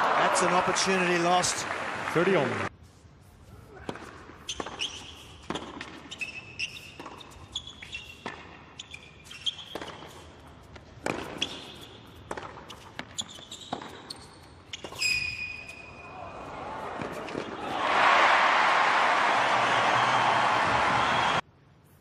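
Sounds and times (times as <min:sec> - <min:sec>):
tennis ball bouncing: 0:03.9 - 0:08.6, 0:09.2 - 0:15.1
shoe squeaks: 0:04.4 - 0:10.3, 0:11.2 - 0:16.0
racket striking tennis ball: 0:09.6 - 0:14.1.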